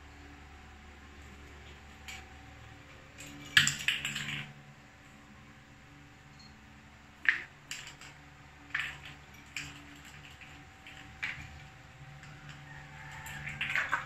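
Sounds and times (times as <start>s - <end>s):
cat toy clattering on tiles: 3.2s - 4.5s.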